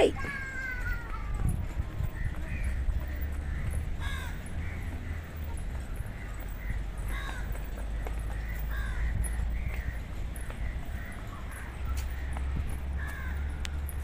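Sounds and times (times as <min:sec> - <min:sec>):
crows cawing: 0:02.2 - 0:05.4, 0:06.6 - 0:13.8.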